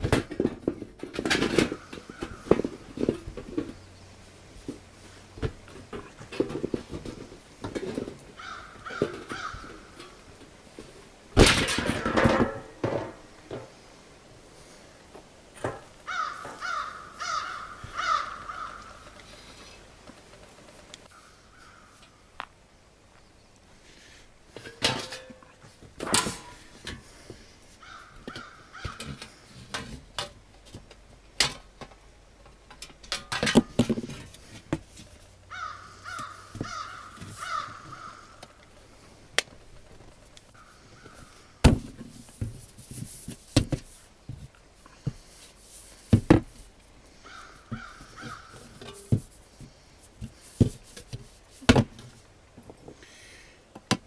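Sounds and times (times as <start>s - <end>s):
crow cawing: 8.4s - 10.0s, 16.1s - 19.5s, 21.1s - 22.0s, 27.8s - 29.0s, 35.5s - 38.6s, 40.6s - 41.6s, 47.2s - 48.7s.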